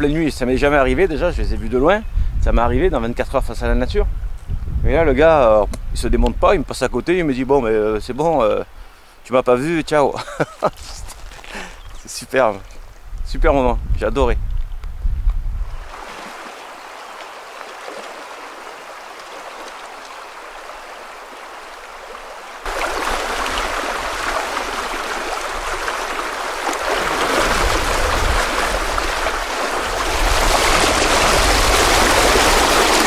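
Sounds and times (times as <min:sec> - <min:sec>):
current churning around legs: 0:15.8 - 0:33.0
river rushing over stones: 0:15.8 - 0:33.0.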